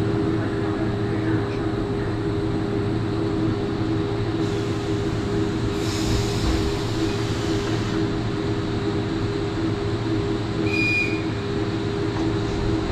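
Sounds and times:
train electrical hum: 0:00.0 - 0:12.9
hiss: 0:04.4 - 0:08.1.

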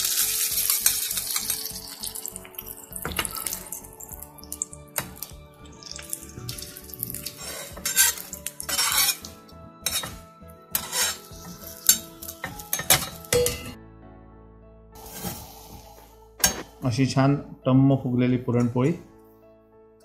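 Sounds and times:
ghee sizzling: 0:00.0 - 0:13.5, 0:15.0 - 0:16.8
metal spatula scraping a griddle: 0:07.0 - 0:13.5, 0:15.0 - 0:15.8.

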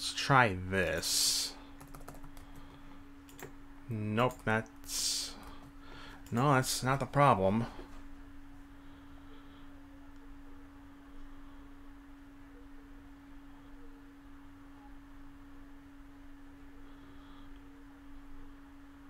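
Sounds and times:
faint pure tone hum: 0:00.0 - 0:19.0
low background noise: 0:00.0 - 0:19.0.

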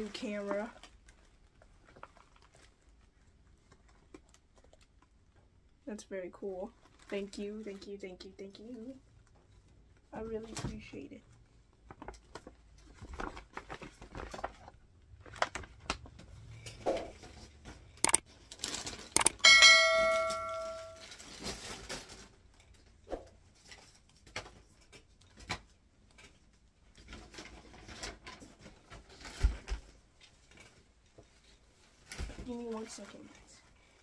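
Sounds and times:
sharp clicks: 0:18.0 - 0:18.2, 0:19.2 - 0:19.4
bell-like ding: 0:19.4 - 0:21.0.

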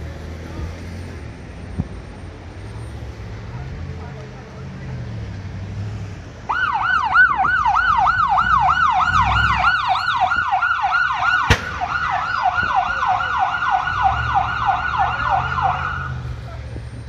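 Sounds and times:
emergency siren yelping: 0:06.5 - 0:16.2.

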